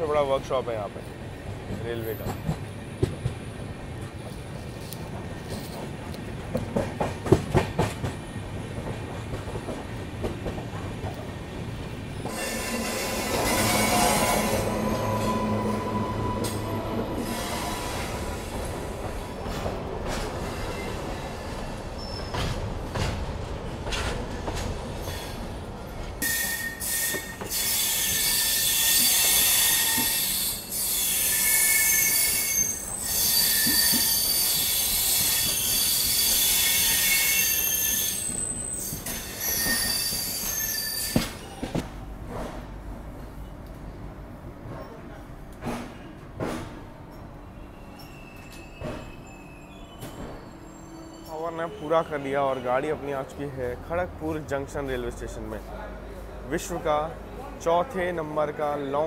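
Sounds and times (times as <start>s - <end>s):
train wheels clicking on rails: 1.2s - 15.4s, 16.4s - 43.8s, 44.6s - 47.3s
train wheels squealing: 12.3s - 18.5s, 20.4s - 22.6s, 25.0s - 25.5s, 26.2s - 41.8s, 47.1s - 53.2s.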